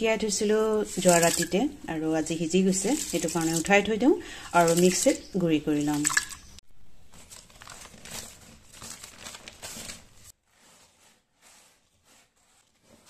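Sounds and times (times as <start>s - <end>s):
hand stirring seeds on newspaper: 0.0s - 6.0s, 7.1s - 13.0s
wet swishing of rice in water: 0.4s - 3.8s, 10.3s - 13.0s.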